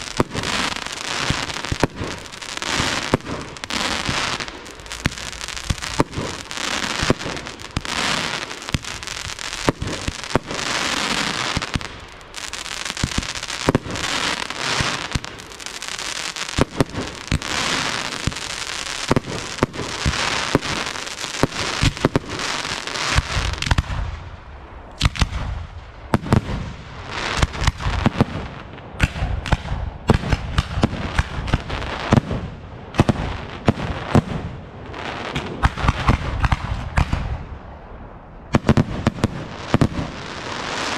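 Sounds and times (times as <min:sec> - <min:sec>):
sharp firework bangs: 0:00.0 - 0:15.8, 0:35.3 - 0:37.5
fireworks crackle and hiss: 0:00.0 - 0:37.6, 0:38.5 - 0:40.9.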